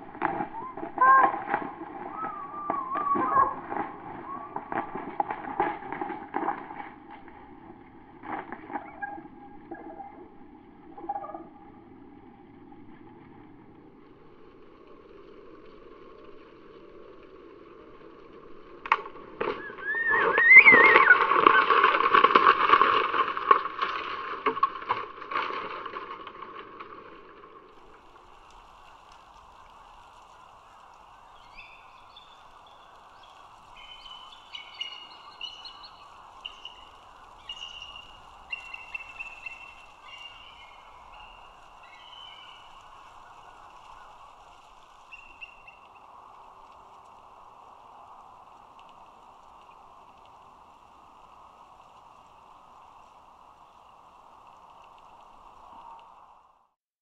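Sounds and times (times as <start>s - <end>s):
eagles chittering calls: 0.2s - 5.6s, 8.3s - 11.7s, 19.4s - 21.9s, 29.8s - 46.6s
brief squeal: 19.6s - 21.7s.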